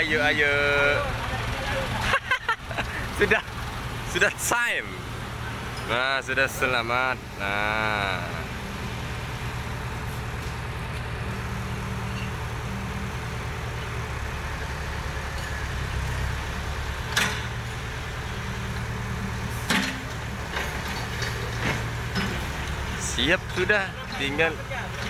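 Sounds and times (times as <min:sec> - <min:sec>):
diesel engine running: 0:00.0 - 0:25.0.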